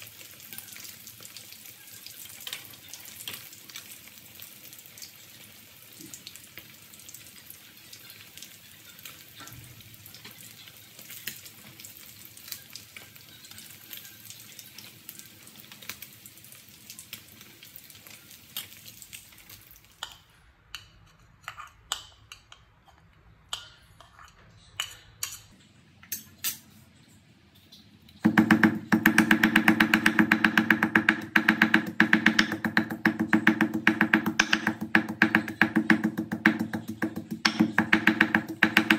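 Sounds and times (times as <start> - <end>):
fish sizzling in hot oil: 0.0 - 20.2.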